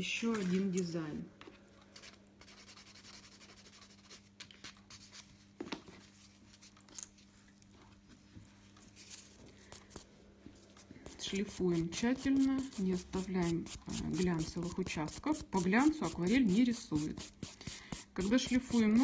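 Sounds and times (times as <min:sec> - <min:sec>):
low steady hum: 0:00.0 - 0:19.0
nail buffer scratching: 0:11.1 - 0:19.0.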